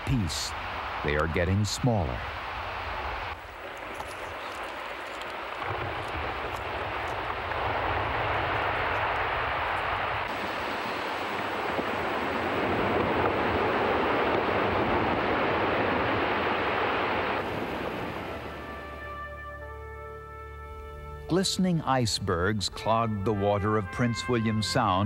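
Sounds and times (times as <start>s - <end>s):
soft music: 18.1s - 25.0s.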